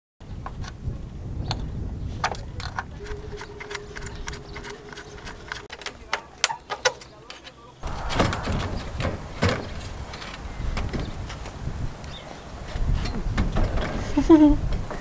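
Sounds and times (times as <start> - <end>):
steady low rumble: 7.8 - 10.8.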